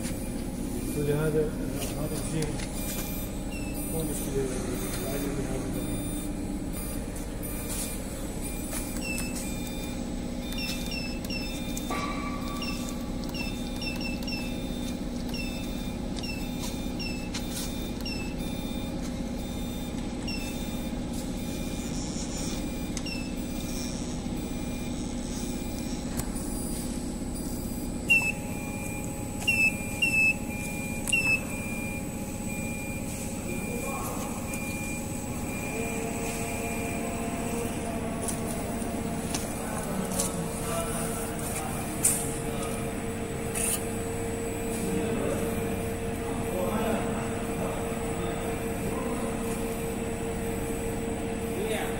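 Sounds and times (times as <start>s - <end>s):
lathe machine humming: 18.9s - 51.9s.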